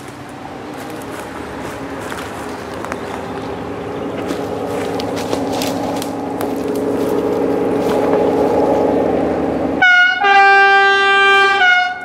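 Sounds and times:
locomotive engine running: 0.0 - 12.0
two-tone train horn: 9.7 - 12.0.

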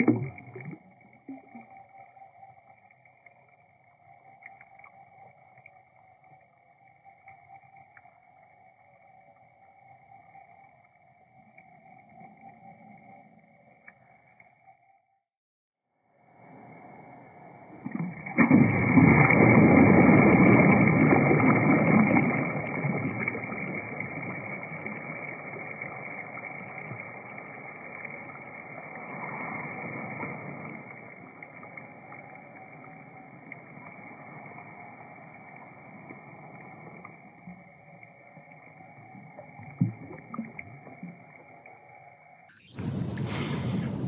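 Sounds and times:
water splashing: 0.0 - 1.7, 17.6 - 41.4.

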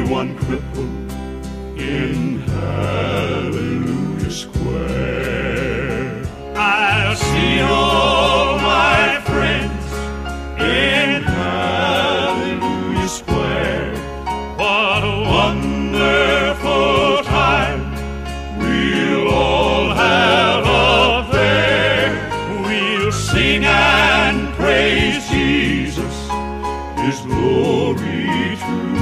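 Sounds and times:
low musical accompaniment: 0.0 - 29.0
person singing with vibrato: 1.8 - 9.9.

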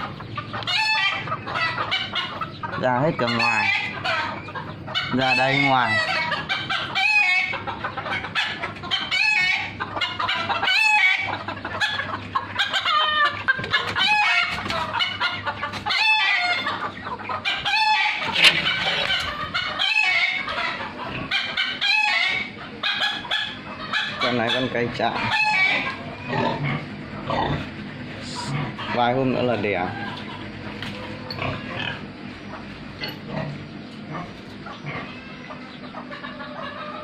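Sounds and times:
chickens clucking: 0.0 - 37.0
rooster crowing: 24.3 - 26.4.

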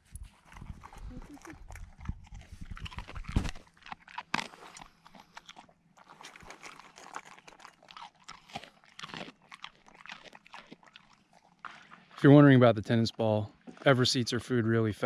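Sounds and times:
dog crunching kibble: 0.2 - 12.2.

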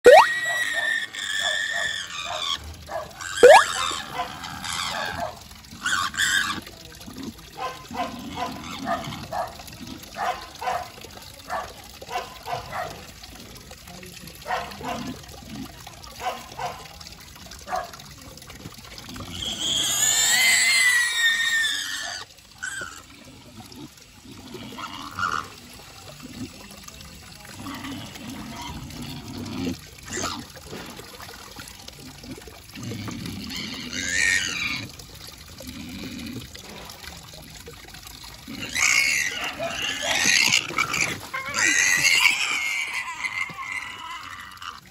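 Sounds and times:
pig squealing: 0.0 - 9.4, 19.2 - 23.2, 24.3 - 25.6, 27.6 - 30.5, 33.1 - 34.9, 38.5 - 44.9
tap water running into basin: 0.0 - 44.9
pig grunting: 0.2 - 10.4, 19.0 - 25.6, 27.4 - 30.6, 32.2 - 35.0, 38.4 - 44.9.

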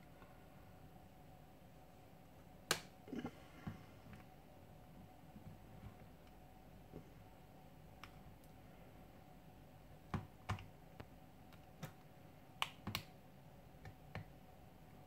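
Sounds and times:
small plastic clicks and snaps: 8.0 - 8.6, 10.1 - 13.2.

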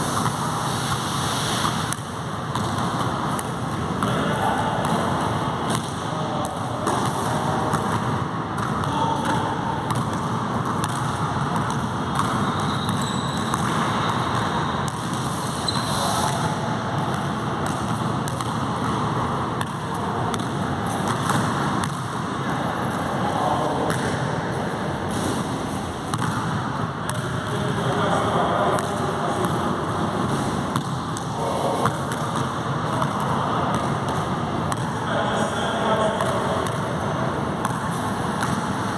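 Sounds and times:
steady background noise: 0.0 - 38.9
basketball bouncing on floor: 1.6 - 4.2, 4.8 - 22.2, 23.8 - 24.2, 26.1 - 27.5, 30.2 - 35.0, 37.6 - 38.8.

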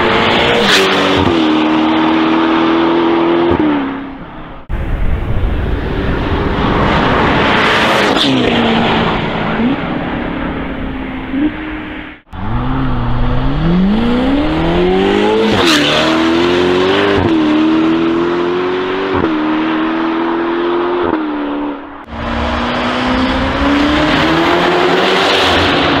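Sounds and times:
sports car engine accelerating: 11.3 - 21.4, 22.1 - 26.0.

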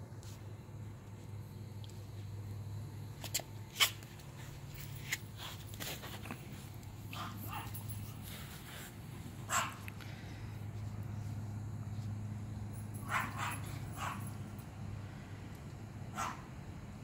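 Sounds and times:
steady low hum: 0.0 - 17.0
dog barking: 7.1 - 7.9, 9.5 - 9.9, 13.0 - 14.4, 16.1 - 16.5.

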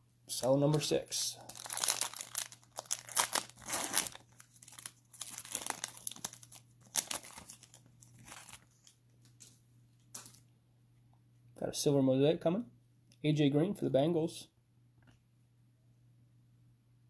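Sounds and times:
plastic wrapper tearing and crinkling: 0.7 - 9.5.

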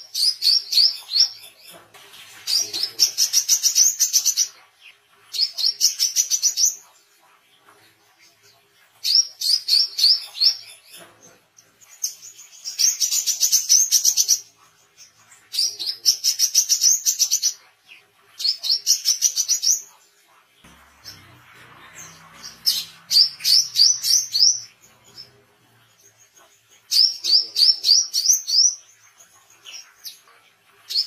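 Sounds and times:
faint low hum: 19.9 - 27.6
bird chittering song: 20.6 - 30.3.

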